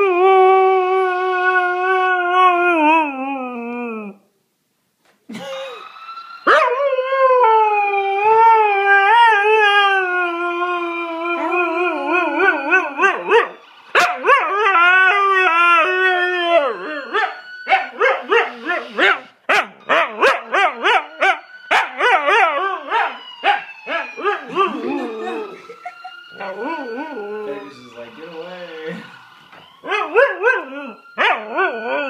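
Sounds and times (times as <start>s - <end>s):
dog howling: 6.4s - 29.2s, 29.8s - 32.0s.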